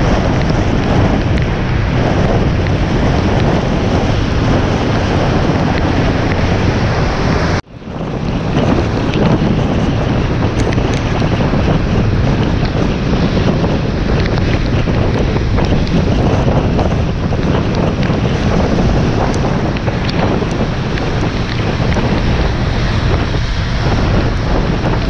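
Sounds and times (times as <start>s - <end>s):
wind rushing on camera: 0.0s - 25.0s.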